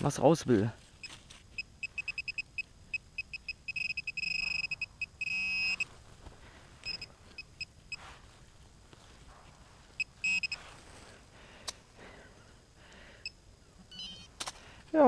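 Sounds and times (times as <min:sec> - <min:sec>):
metal detector continuous tone: 0:00.0 - 0:06.0, 0:06.8 - 0:08.4, 0:09.0 - 0:10.9, 0:12.9 - 0:14.5
metal detector beeping: 0:01.0 - 0:05.9, 0:06.8 - 0:08.1, 0:10.0 - 0:10.7, 0:13.2 - 0:14.4.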